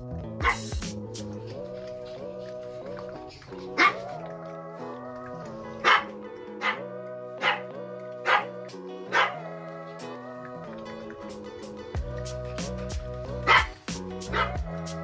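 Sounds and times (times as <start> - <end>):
background music: 0.0 - 15.0
dog barking: 0.4 - 0.6, 3.8 - 4.1, 5.8 - 9.4, 13.4 - 14.6.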